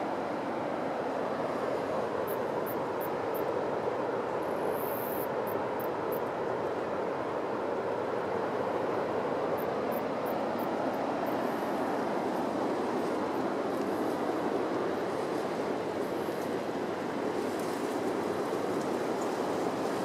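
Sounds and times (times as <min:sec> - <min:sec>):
sea surf roaring: 0:00.0 - 0:20.0.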